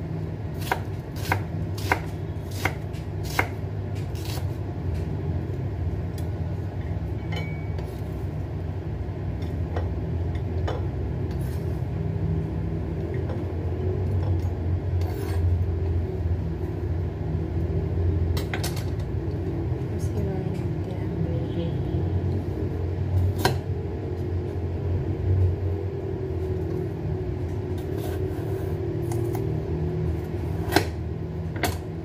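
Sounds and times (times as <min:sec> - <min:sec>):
knife scraping vegetables: 0:15.0 - 0:15.5, 0:27.8 - 0:29.4.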